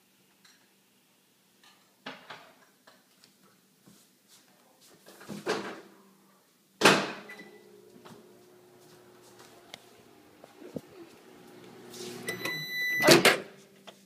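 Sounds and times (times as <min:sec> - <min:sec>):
appliance hum: 0:07.3 - 0:13.0.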